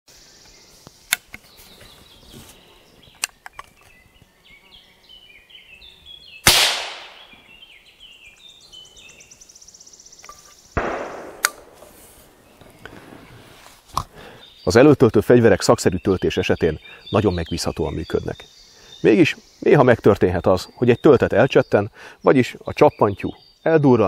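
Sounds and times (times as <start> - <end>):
loud crack: 6.5 - 7.3, 10.8 - 12.2
percussion cap snapping: 11.3 - 11.7.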